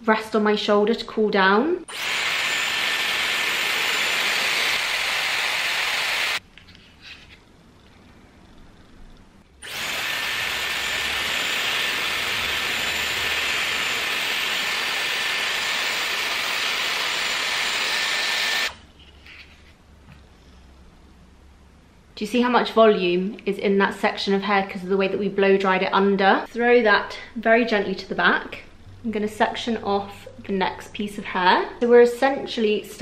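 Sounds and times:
hair styler air rush and whine: 1.9 - 6.4, 9.6 - 18.8.

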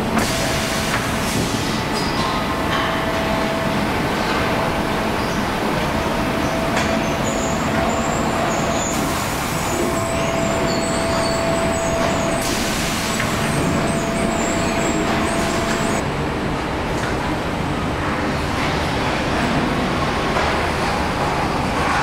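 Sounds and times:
machinery din: 0.0 - 16.0
machine whine: 0.0 - 16.1.

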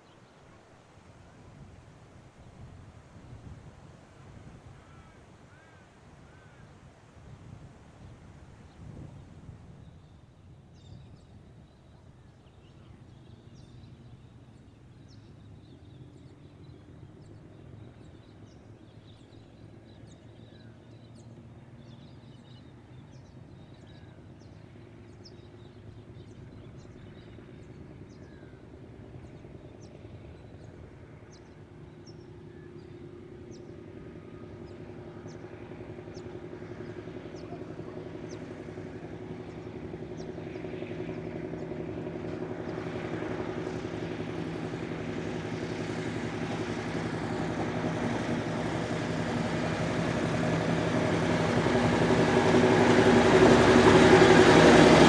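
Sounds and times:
birds chirping: 4.4 - 6.8, 9.8 - 55.0
railcar engine running: 25.4 - 55.0.

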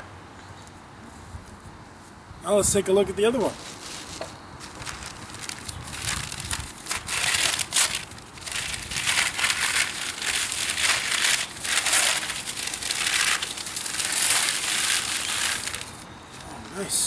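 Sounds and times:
wrapping crinkling and rustling: 3.6 - 16.6.

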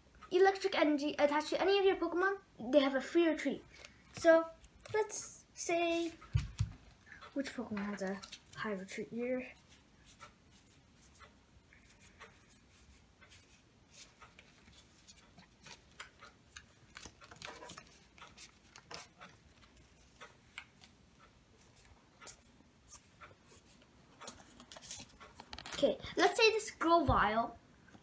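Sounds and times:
cards flipping and rustling: 8.0 - 8.6, 11.9 - 21.0, 22.9 - 25.8.

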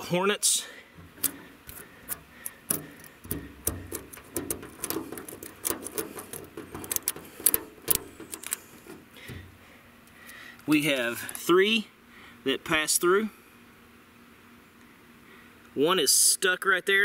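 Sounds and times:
fingertips tapping on sheet metal: 1.0 - 9.5.

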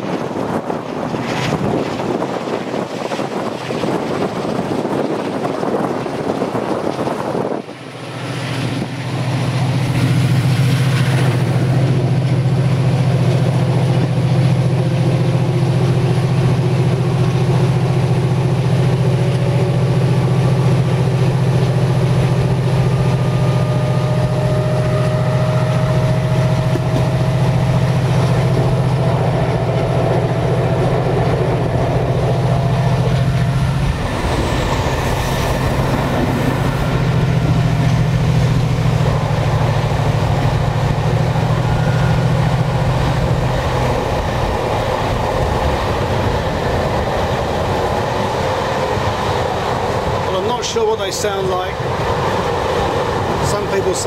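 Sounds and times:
locomotive engine drone: 0.0 - 54.0
wind rush: 0.0 - 54.0
faint whines rising in pitch: 22.8 - 46.4.

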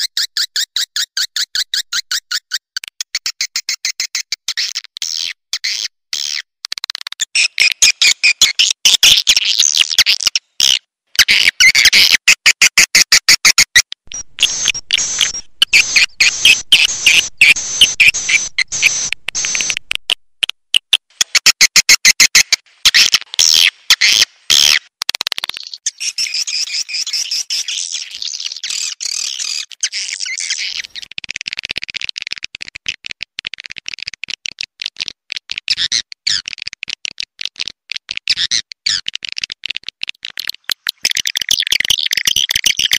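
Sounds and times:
swiftlets twittering and clicking: 13.6 - 20.2, 24.7 - 42.9.

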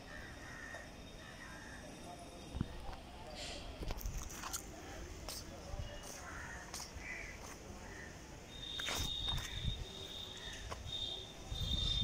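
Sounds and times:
insect high thin trill: 8.5 - 12.0.

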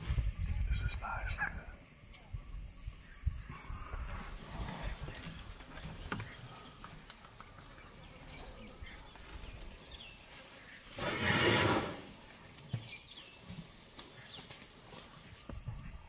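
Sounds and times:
faint bird chirps: 0.1 - 11.0.

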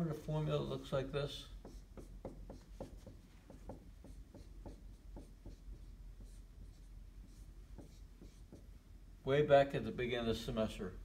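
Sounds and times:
marker writing on whiteboard: 1.5 - 8.7.

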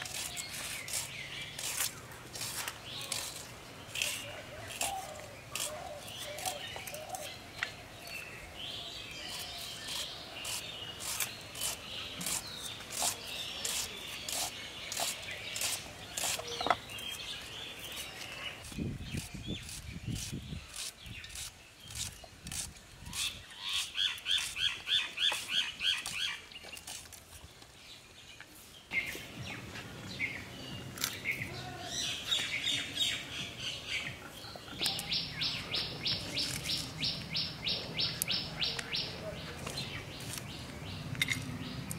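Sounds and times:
onions being cut with a blade: 0.0 - 7.4, 9.2 - 17.2, 17.8 - 27.2
birds chirping: 0.0 - 41.9.

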